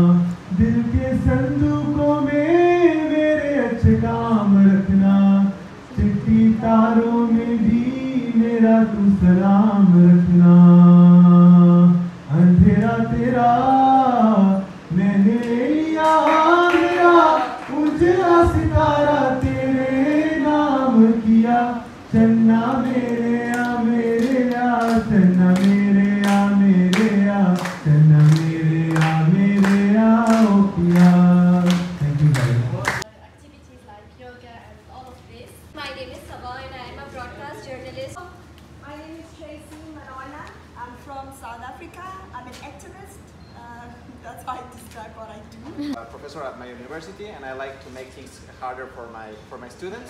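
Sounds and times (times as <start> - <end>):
man singing unaccompanied: 0.0 - 33.0
people clapping along: 15.4 - 18.7, 19.3 - 20.3, 22.6 - 33.0.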